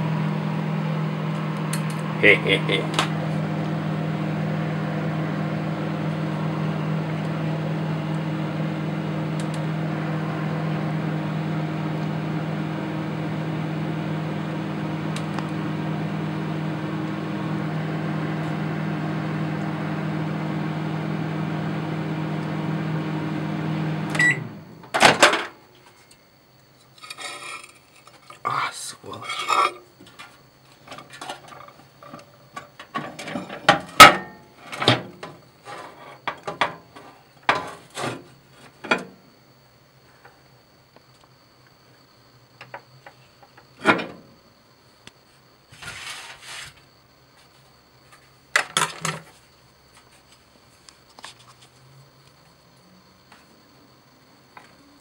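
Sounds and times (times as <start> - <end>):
microwave oven humming: 0.0 - 25.5
microwave click: 9.2 - 10.1, 15.0 - 15.7, 23.6 - 25.2.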